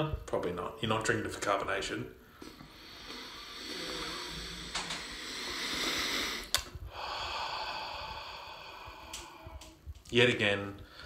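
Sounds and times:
man sniffing deeply: 0:02.7 - 0:09.5
long exhale through mouth: 0:02.8 - 0:09.8.

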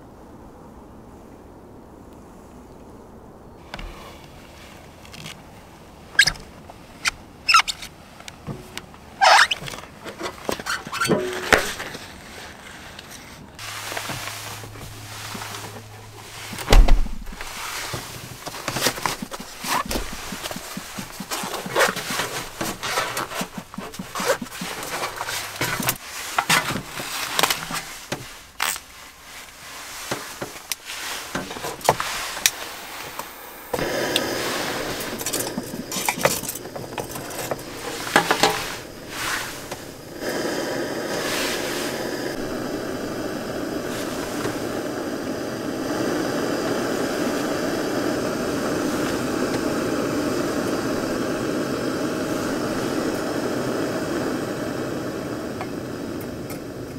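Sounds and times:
gas burner rushing: 0:09.2 - 0:56.9
gas hissing: 0:10.3 - 0:12.0, 0:13.6 - 0:56.9.

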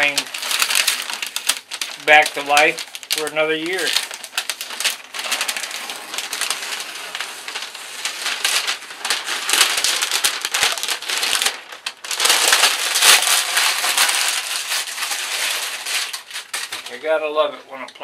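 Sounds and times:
masking tape peeling: 0:00.0 - 0:16.9
paper crinkling and crumpling: 0:00.0 - 0:17.2.

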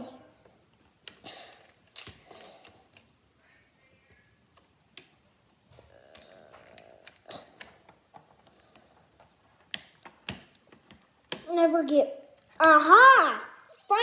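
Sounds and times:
plastic toy parts clicking: 0:01.0 - 0:03.2, 0:04.5 - 0:05.2, 0:06.1 - 0:11.5.

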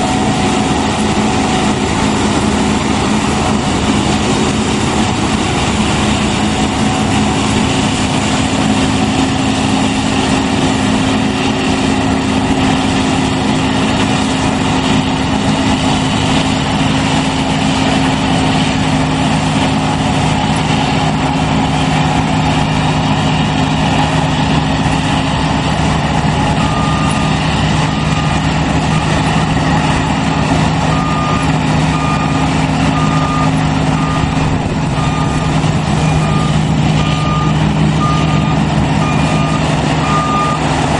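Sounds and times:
combine harvester droning: 0:00.0 - 0:40.9
reversing alarm beeps: 0:26.3 - 0:30.2, 0:30.8 - 0:40.8.

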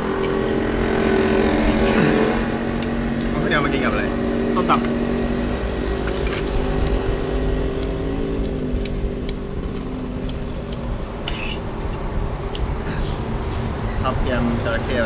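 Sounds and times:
vehicle engine humming: 0:00.0 - 0:15.0
cutlery clinking on plates: 0:11.2 - 0:12.1.

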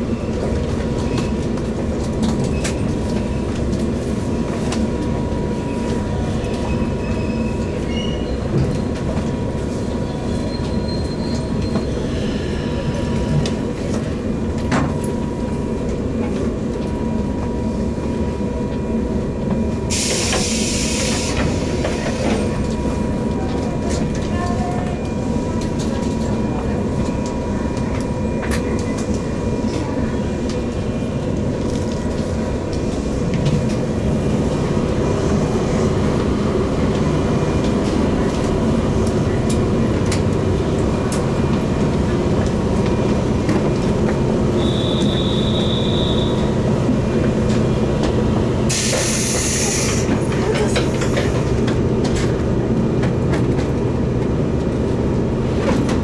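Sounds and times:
train wheels rumbling on rail: 0:00.0 - 0:56.0
hiss of air: 0:19.9 - 0:21.6, 0:48.7 - 0:50.1.

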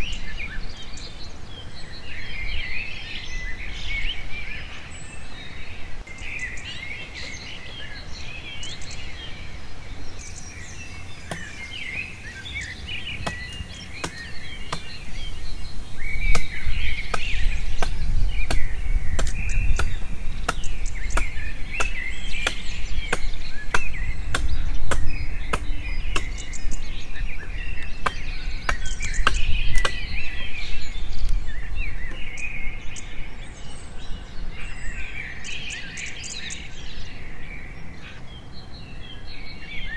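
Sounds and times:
machete chopping wood: 0:10.2 - 0:32.4
birds chirping: 0:10.2 - 0:32.7.

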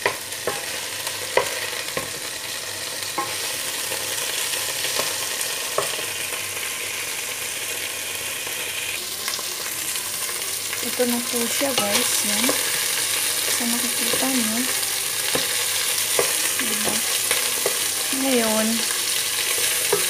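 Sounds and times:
chicken sizzling in hot oil: 0:00.0 - 0:20.0.

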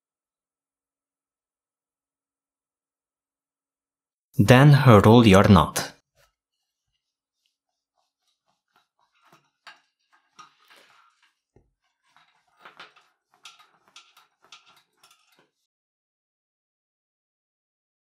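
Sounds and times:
board scraping on tabletop: 0:06.1 - 0:15.6.

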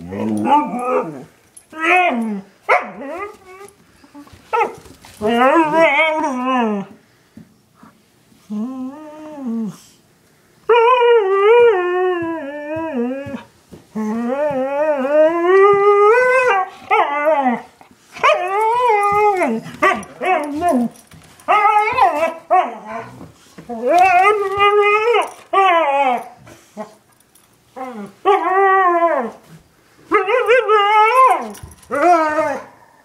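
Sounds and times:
dog howling: 0:10.8 - 0:26.4.

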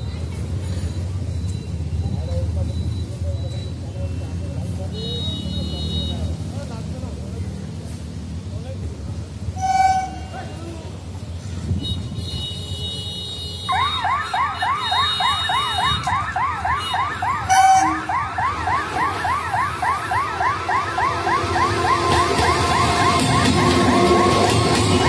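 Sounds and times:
warbling electronic siren: 0:13.7 - 0:25.0
electric train passing: 0:17.8 - 0:25.0.

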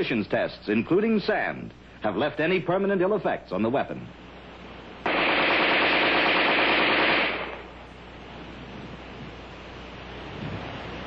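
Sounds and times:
rifle automatic burst: 0:05.1 - 0:07.8.

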